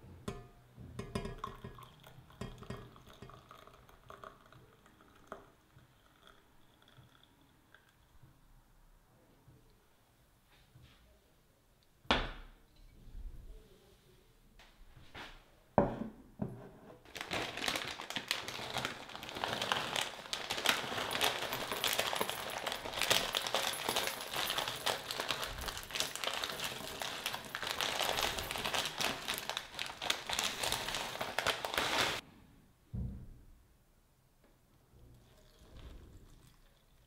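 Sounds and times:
plastic bag crinkling: 0:17.1 - 0:32.2
cereal pouring into ceramic bowl: 0:17.2 - 0:32.2.

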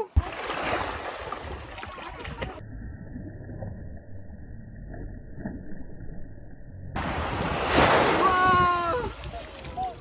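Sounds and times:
faint splashes in shallow water: 0:00.0 - 0:02.6, 0:07.0 - 0:10.0
wind rumble on microphone: 0:06.9 - 0:10.0.

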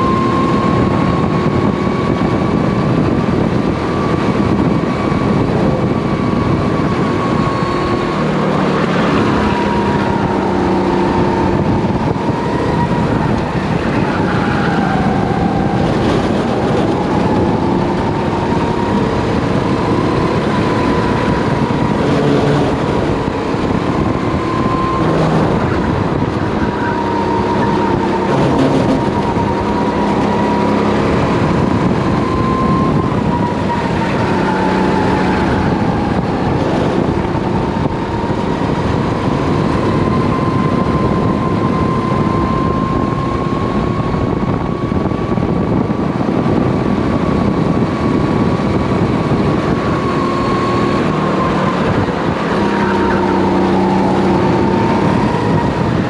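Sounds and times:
kart engine revving: 0:00.0 - 0:56.0
wind rushing noise: 0:00.0 - 0:56.0.

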